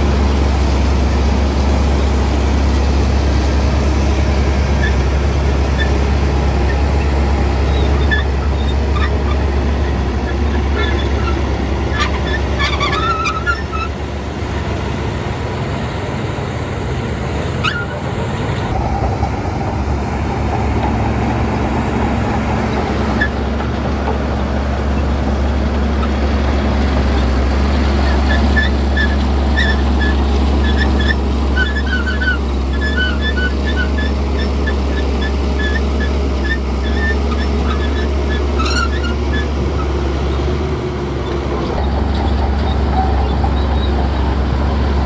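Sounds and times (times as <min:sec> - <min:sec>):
heavy diesel engine running: 0:00.0 - 0:45.0.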